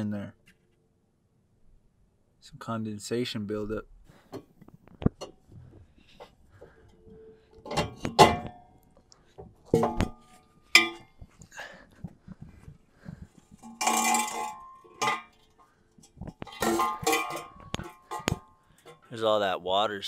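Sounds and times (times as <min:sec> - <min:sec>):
metal exhaust pipe clanking: 0:07.6 - 0:08.7, 0:09.7 - 0:11.2, 0:13.4 - 0:19.1
metal scraping on concrete: 0:13.6 - 0:15.6.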